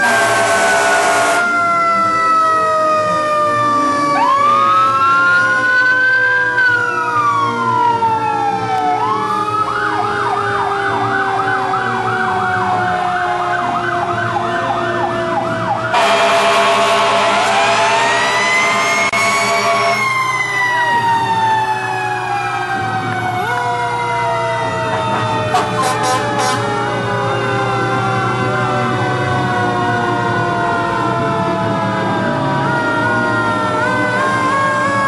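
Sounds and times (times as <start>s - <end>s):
loud horn blare: 0.0s - 1.7s, 15.9s - 20.2s, 24.7s - 27.1s
siren wailing and yelping: 0.0s - 35.0s
siren winding down: 0.0s - 35.0s.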